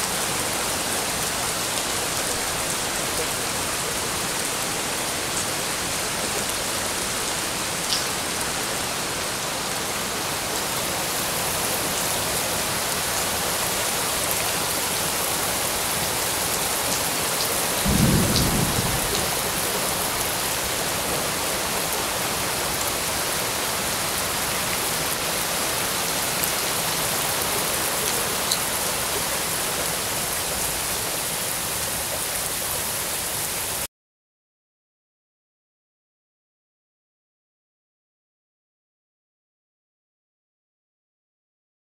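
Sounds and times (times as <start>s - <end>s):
heavy rain on leaves: 0.0s - 33.9s
rain drops ticking: 7.8s - 8.7s, 12.8s - 23.4s
thunder rumble: 17.8s - 19.7s.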